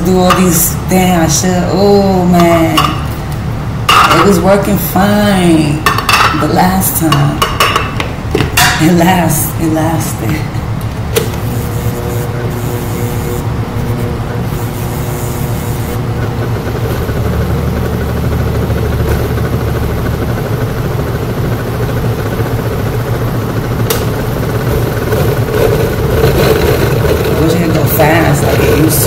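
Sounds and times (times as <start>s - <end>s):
blender motor churning vegetables: 11.2s - 21.2s, 24.2s - 29.0s.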